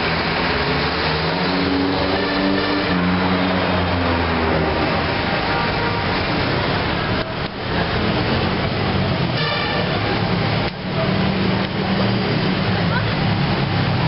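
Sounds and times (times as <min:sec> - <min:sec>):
street traffic noise: 0:00.0 - 0:14.0.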